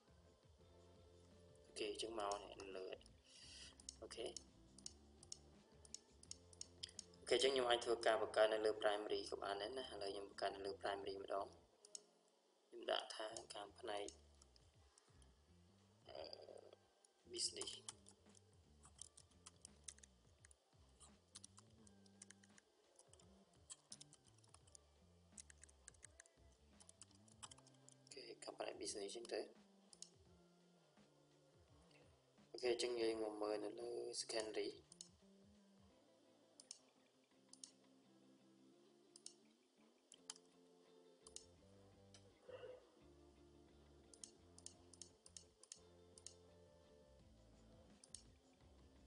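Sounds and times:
quiet background music: 0.0 - 49.0
keyboard typing: 17.4 - 28.1, 41.2 - 41.5
faint computer mouse clicks: 41.2 - 41.5, 44.1 - 46.4, 47.9 - 48.3.

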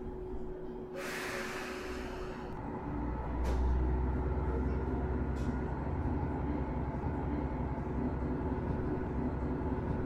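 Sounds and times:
train engine drone: 0.0 - 10.0.

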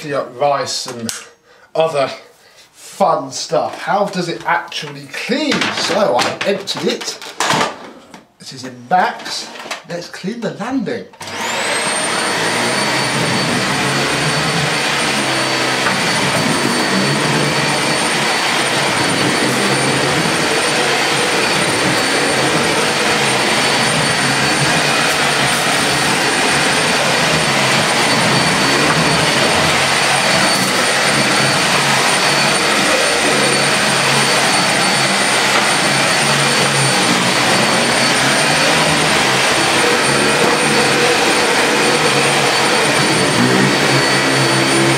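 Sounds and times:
vacuum cleaner motor running: 11.2 - 44.9.

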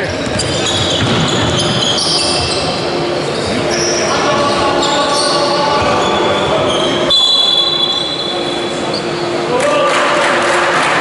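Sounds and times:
basketball bouncing: 0.0 - 2.5
echoing voices: 0.0 - 11.0.

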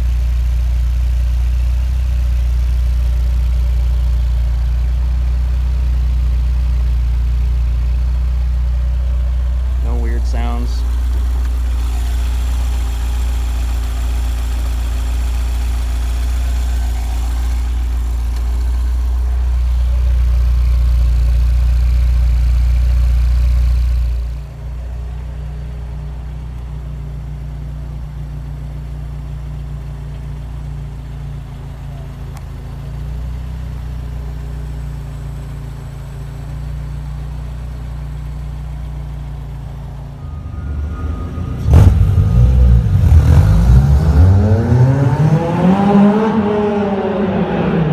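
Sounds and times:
car engine idling: 0.0 - 47.9
sports car engine revving: 0.0 - 47.9
sharp crack: 16.7 - 19.0.

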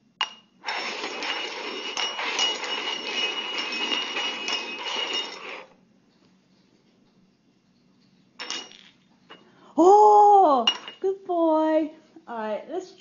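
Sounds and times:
metal cups scraping and clinking: 0.2 - 5.8.

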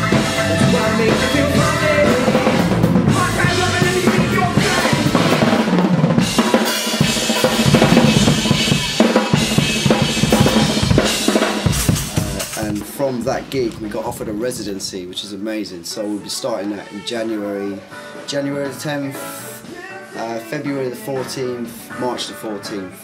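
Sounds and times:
bass: 0.0 - 6.4, 7.0 - 15.1
horn section: 0.0 - 12.8
electric guitar: 0.0 - 12.9
drum kit beat: 0.0 - 15.4.

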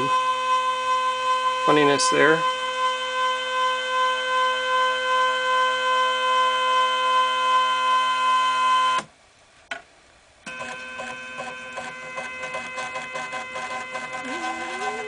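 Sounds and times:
stepper motors whining: 13.9 - 15.0.

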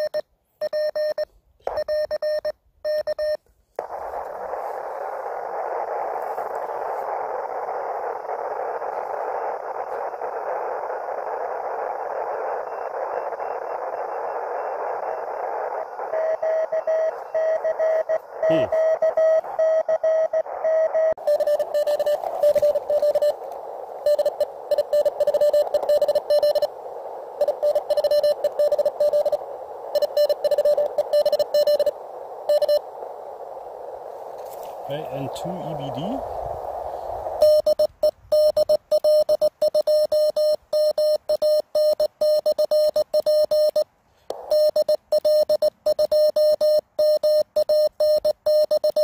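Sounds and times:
morse code tones: 0.0 - 3.4, 16.0 - 23.4, 24.0 - 33.3, 37.4 - 49.0
radio band hiss: 3.8 - 39.2, 39.8 - 47.8.

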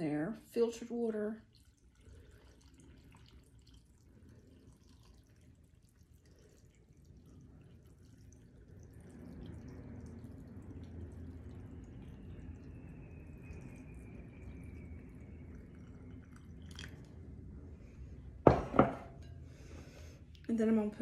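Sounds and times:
water pouring into a glass jar: 0.6 - 18.6.

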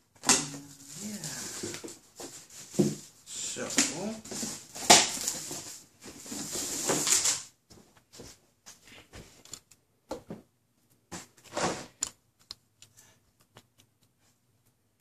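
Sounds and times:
tape and cardboard tearing: 0.2 - 1.8
cardboard flaps knocking and rustling: 0.2 - 3.2, 3.8 - 7.9.

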